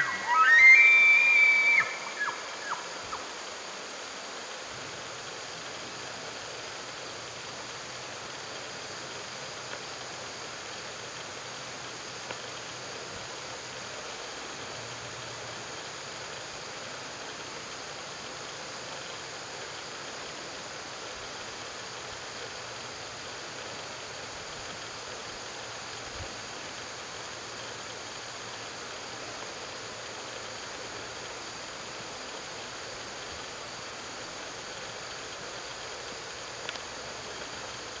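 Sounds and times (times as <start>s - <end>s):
outdoor background hiss: 0.0s - 38.0s
faint click: 12.2s - 12.5s, 36.2s - 37.5s.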